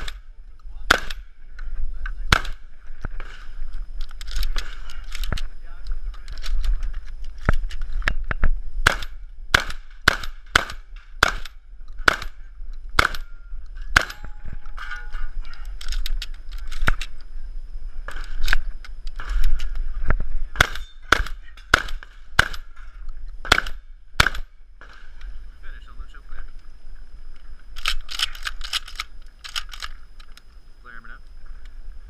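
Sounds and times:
shotgun shots: 0.0s - 1.4s, 2.3s - 3.5s, 8.8s - 12.4s, 13.0s - 13.3s, 13.9s - 14.4s, 20.5s - 22.8s, 23.4s - 25.2s.

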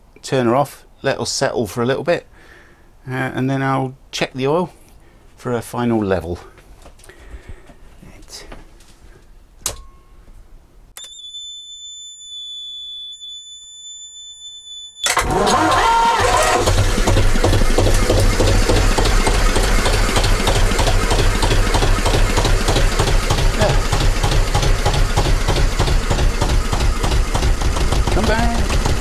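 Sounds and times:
high-pitched electronic tone: 11.0s - 15.1s
diesel engine starting and running: 15.0s - 29.0s.

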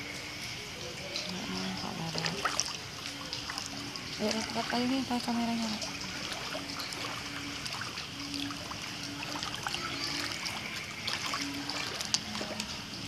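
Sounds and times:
raindrop ticks: 10.5s - 12.9s.

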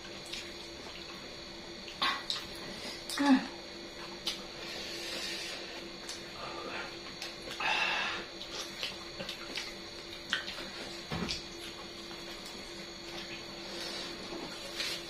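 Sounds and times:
chewing and gnawing: 0.0s - 3.2s, 3.9s - 4.6s, 8.4s - 15.0s
faint steady hum: 0.0s - 15.0s.

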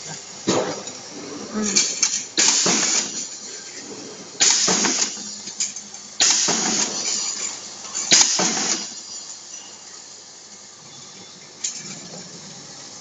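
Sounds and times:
air hissing: 0.0s - 10.0s.

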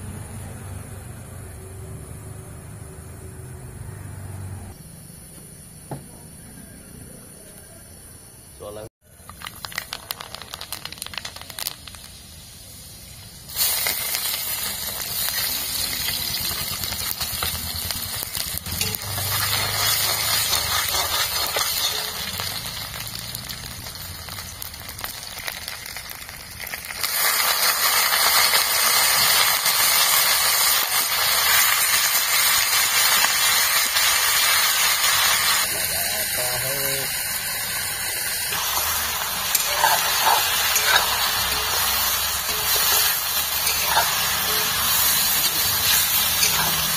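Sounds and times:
food sizzling in wok: 9.1s - 46.9s
hot oil crackling in wok: 9.1s - 46.9s.

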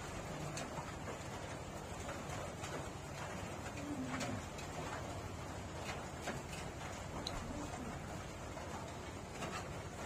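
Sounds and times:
pigeon cooing: 3.7s - 4.5s, 7.3s - 8.2s.

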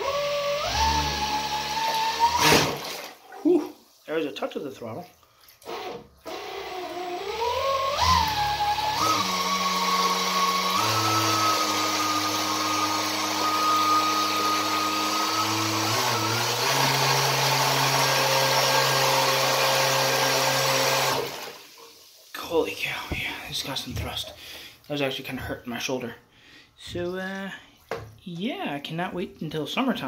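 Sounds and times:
water churning: 2.0s - 6.1s
electric motor whine: 7.2s - 20.2s.

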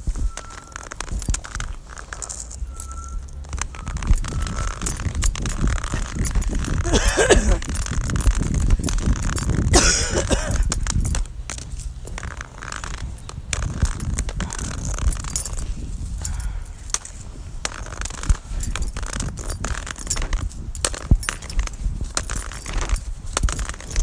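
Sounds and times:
phone handling rustle: 0.0s - 24.0s
small irregular clicks and knocks: 0.0s - 24.0s.

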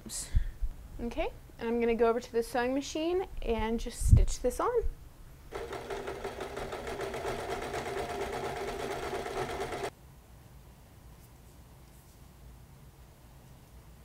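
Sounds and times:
electric sewing machine running: 5.5s - 9.9s.

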